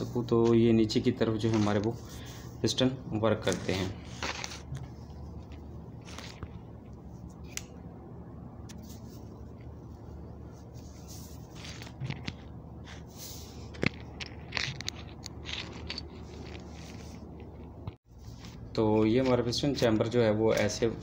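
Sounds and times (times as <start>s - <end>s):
steady low hum: 0.0s - 21.0s
metal clicks and scrapes: 13.7s - 18.6s.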